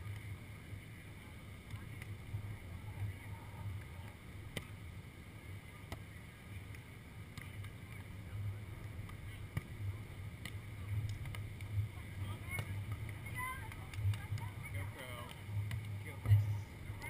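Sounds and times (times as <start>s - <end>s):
volleyball hits: 1.6s - 4.9s, 5.7s - 17.0s.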